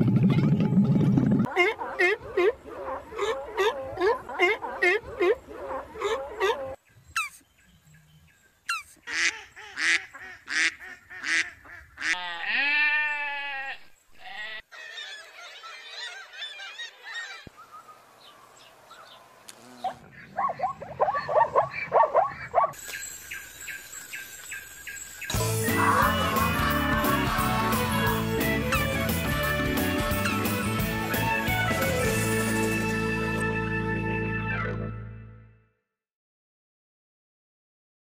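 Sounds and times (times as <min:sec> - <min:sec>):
seabirds calling: 0:01.4 - 0:12.3, 0:14.2 - 0:31.9.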